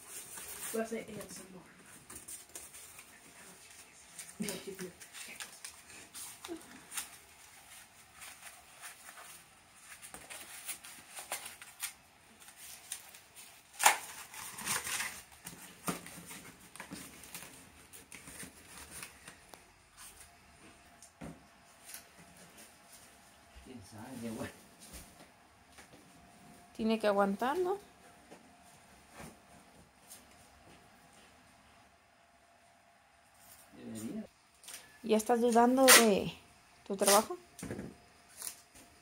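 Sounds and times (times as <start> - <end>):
paper rustling and crinkling: 0.0 - 20.3.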